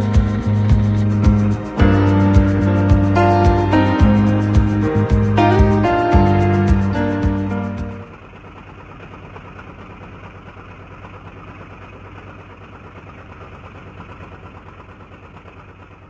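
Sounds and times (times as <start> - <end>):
background music: 0.0 - 8.1
boat diesel engine droning: 0.0 - 16.0.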